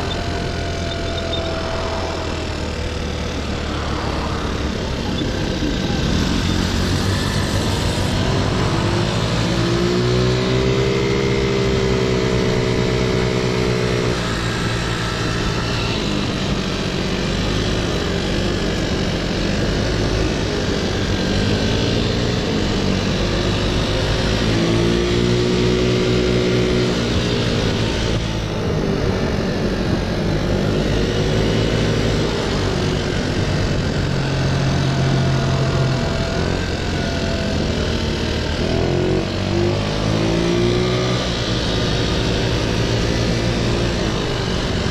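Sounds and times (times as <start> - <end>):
scooter engine revving: 0.0 - 44.9
wind and road noise: 0.0 - 44.9.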